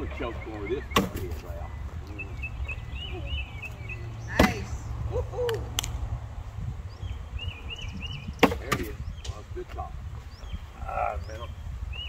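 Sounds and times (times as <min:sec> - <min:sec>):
bird chirping: 0:00.0 - 0:05.5, 0:06.7 - 0:12.0.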